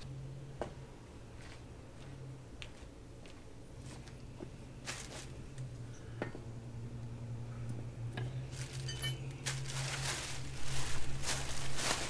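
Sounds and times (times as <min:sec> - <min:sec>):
steady low hum: 0:00.0 - 0:12.0
rustling handling noise: 0:04.8 - 0:05.7, 0:08.4 - 0:12.0
metal tools clinking on concrete: 0:08.8 - 0:09.3.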